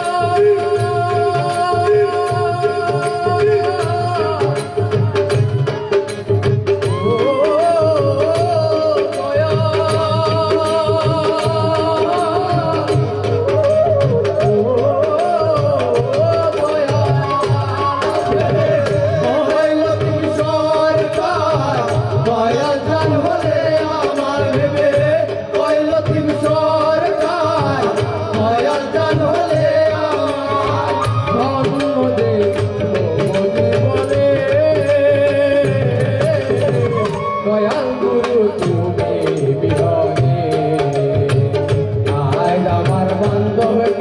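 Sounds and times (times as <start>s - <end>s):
person singing: 0.0s - 44.0s
tabla and drum rhythm: 0.0s - 44.0s
flute melody: 3.6s - 9.0s, 12.7s - 19.6s, 30.1s - 35.3s, 36.3s - 38.8s.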